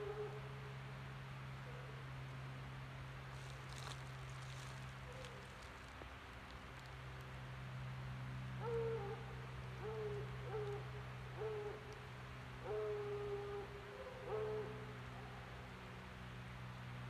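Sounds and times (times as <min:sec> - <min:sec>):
owl hooting: 0:08.6 - 0:11.9, 0:12.6 - 0:14.9.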